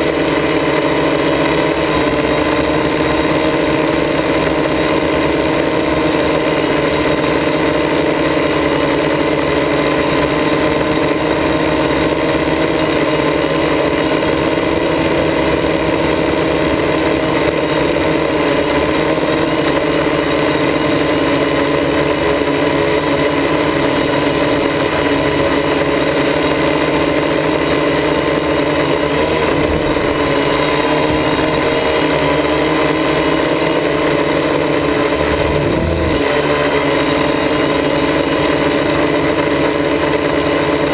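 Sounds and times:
drone propellers whirring: 0:00.0 - 0:40.9.

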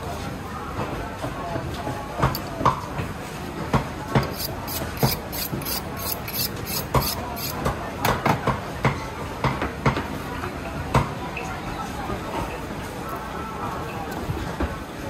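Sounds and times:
knife sharpening strokes: 0:04.2 - 0:07.6.

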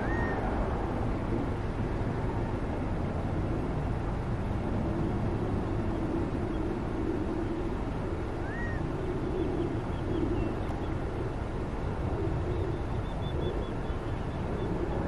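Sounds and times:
low background rumble: 0:00.0 - 0:15.0
faint bird chirps: 0:08.4 - 0:11.0, 0:12.4 - 0:15.0.

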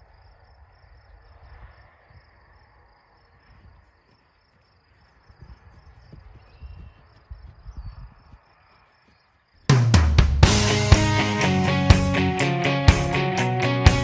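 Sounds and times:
insects chirping: 0:00.0 - 0:09.8.

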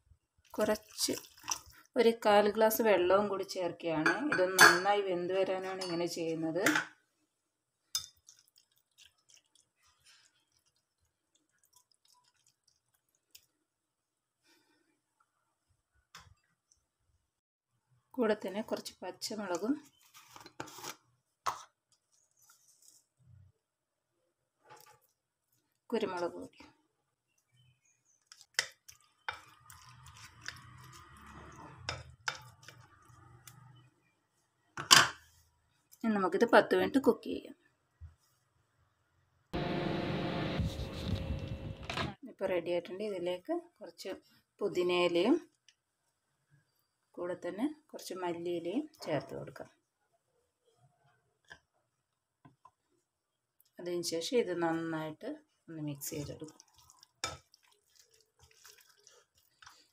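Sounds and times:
wet squishes of stirring: 0:00.4 - 0:02.3, 0:07.8 - 0:14.6, 0:18.5 - 0:23.5, 0:24.5 - 0:36.0, 0:55.4 - 0:59.9
spoon clinking on glass bowl: 0:04.0 - 0:04.8.

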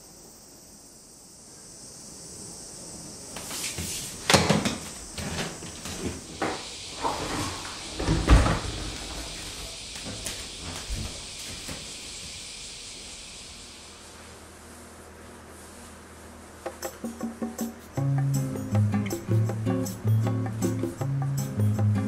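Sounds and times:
wooden door shutting: 0:04.3 - 0:09.5.

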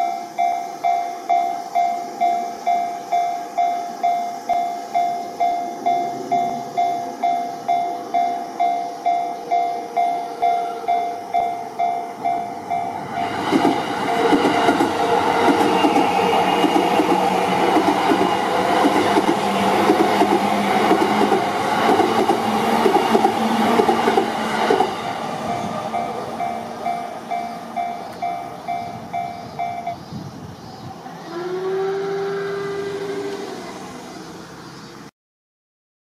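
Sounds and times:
crossing warning bell: 0:00.0 - 0:30.1
train wheel noise: 0:00.0 - 0:35.1.

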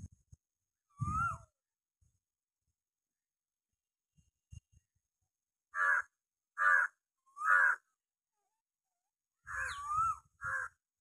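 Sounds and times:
crow cawing: 0:05.7 - 0:07.9, 0:10.4 - 0:10.8.

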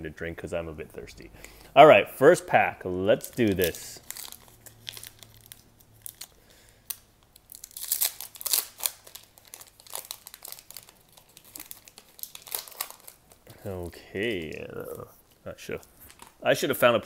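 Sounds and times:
foil wrapper tearing and crinkling: 0:03.1 - 0:15.0.

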